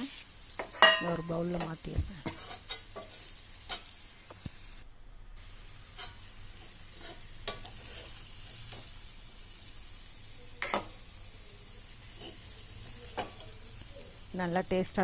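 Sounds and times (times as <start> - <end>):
oil sizzling in pan: 0.0 - 15.0
metal spatula scraping pan: 5.9 - 8.9.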